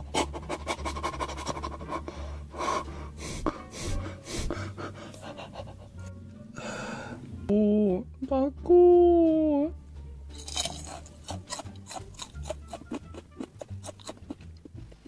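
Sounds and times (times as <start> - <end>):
man panting and gasping: 1.8 - 6.0.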